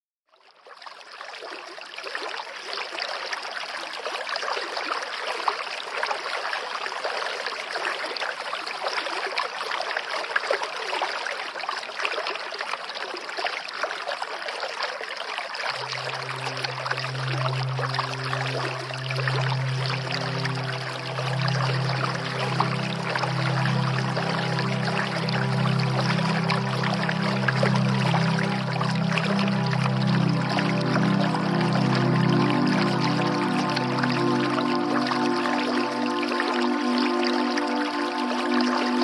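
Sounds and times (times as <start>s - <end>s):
running water: 0.6s - 39.0s
sustained low musical note: 15.7s - 39.0s.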